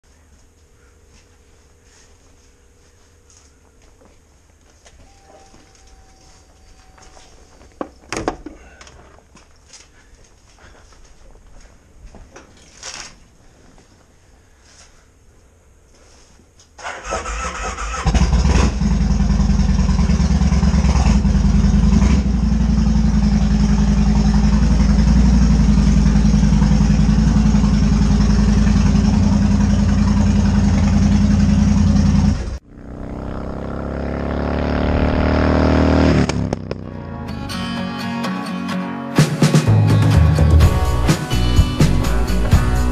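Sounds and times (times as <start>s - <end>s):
motorcycle engine cranking: 16.8s - 21.4s
motorcycle accelerating: 16.8s - 37.3s
motorcycle idling: 17.0s - 34.2s.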